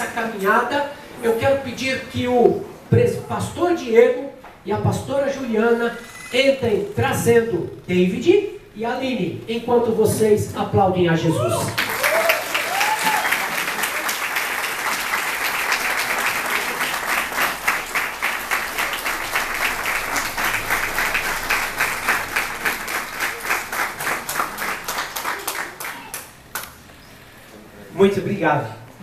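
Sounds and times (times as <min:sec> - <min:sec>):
crowd applauding: 0:11.7 - 0:26.8.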